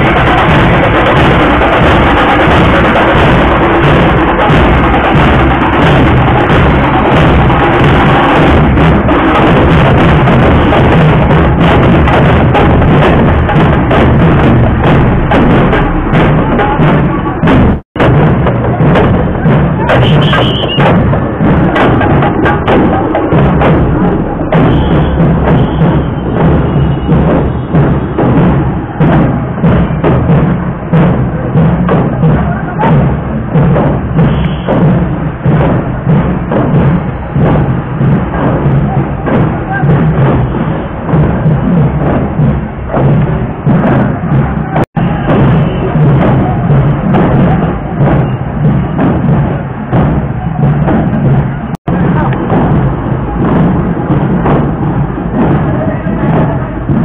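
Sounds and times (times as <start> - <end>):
drum band pounding: 0.0 - 57.0
loud music bed: 0.0 - 57.0.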